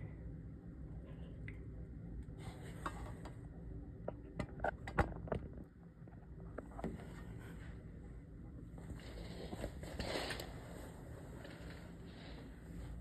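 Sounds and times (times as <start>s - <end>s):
sharp clicks and knocks: 4.0s - 7.0s.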